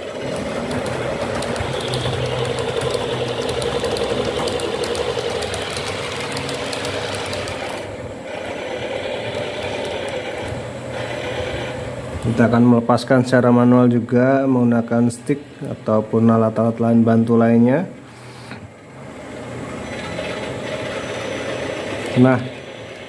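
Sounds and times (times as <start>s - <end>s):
wheels clicking over rail joints: 0.0s - 7.9s
model train motor whirring: 0.0s - 11.8s.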